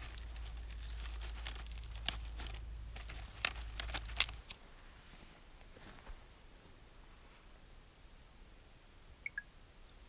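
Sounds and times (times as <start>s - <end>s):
dry twigs crackling and snapping: 0.0s - 4.6s.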